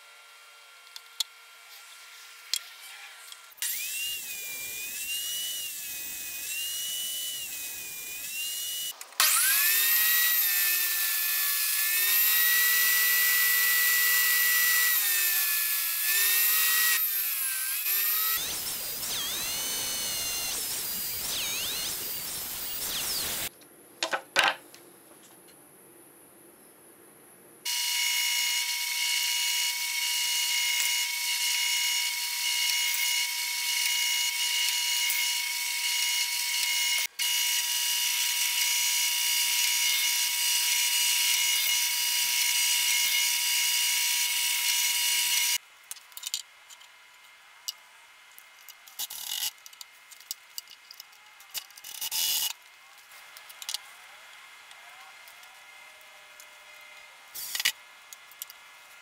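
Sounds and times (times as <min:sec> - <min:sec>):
drill press boring into wood: 0:03.6 - 0:23.5.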